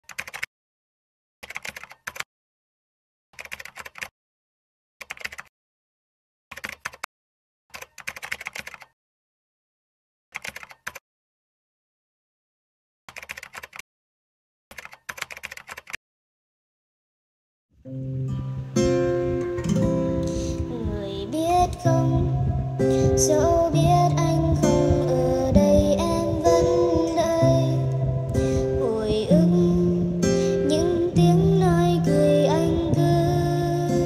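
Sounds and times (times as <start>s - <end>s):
computer keyboard typing: 0.0s - 0.5s, 1.4s - 2.2s, 3.4s - 4.1s, 5.0s - 5.5s, 6.5s - 7.1s, 7.7s - 9.0s, 10.4s - 11.0s, 13.1s - 13.8s, 14.7s - 16.0s.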